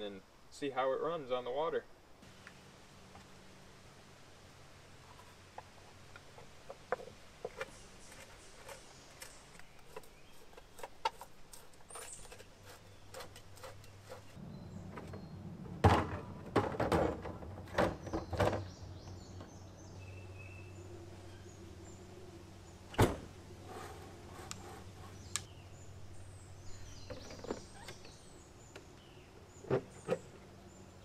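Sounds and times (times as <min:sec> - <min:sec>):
knocks and thumps of parts: 0:14.9 - 0:18.8.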